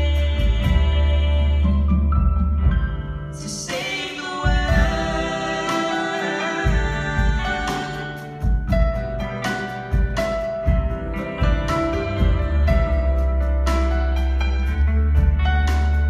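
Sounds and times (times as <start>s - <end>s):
live band playing: 0.0s - 16.0s
boy and girl singing: 3.4s - 8.6s.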